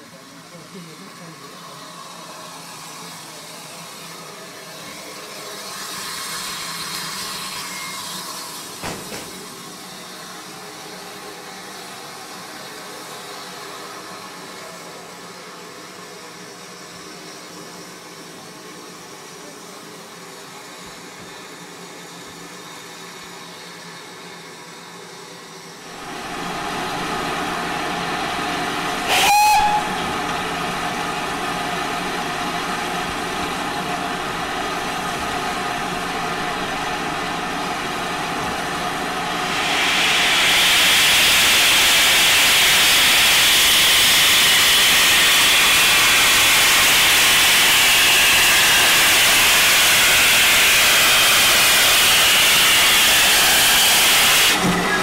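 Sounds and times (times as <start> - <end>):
steam hissing: 0.0 - 23.8, 25.0 - 55.0
steam whistle blast: 29.0 - 30.2.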